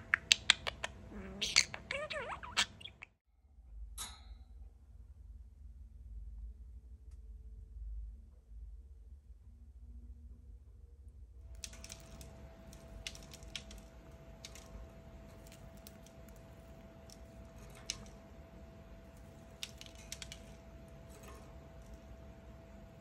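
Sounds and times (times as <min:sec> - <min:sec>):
faint steady hum: 0:00.0 - 0:23.0
bird beak pecking plastic toy: 0:00.1 - 0:01.7, 0:11.6 - 0:18.4, 0:19.1 - 0:22.1.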